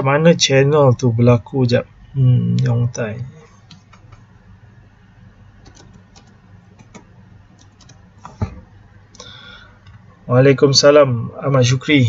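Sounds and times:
faint low hum: 0.0 - 12.0
keyboard keys clicking: 5.6 - 8.4.

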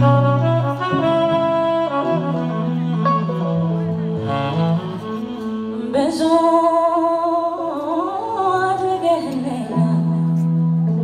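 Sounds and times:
keyboard accompaniment: 0.0 - 7.9
woman singing into a microphone: 5.6 - 11.0.

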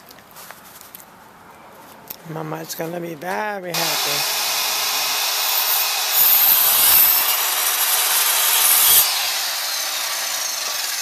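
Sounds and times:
miter saw cutting wood: 3.7 - 11.0
saw blade spinning down: 3.8 - 11.0.

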